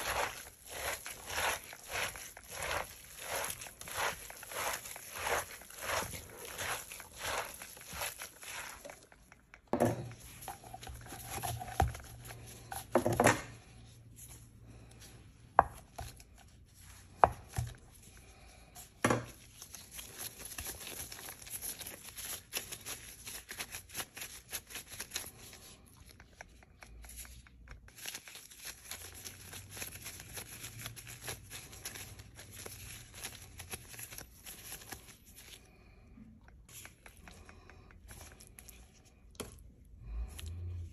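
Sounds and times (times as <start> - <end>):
kneading dough on a wooden board: 0.0 - 18.1
mixing meat filling in a pot: 0.0 - 40.9.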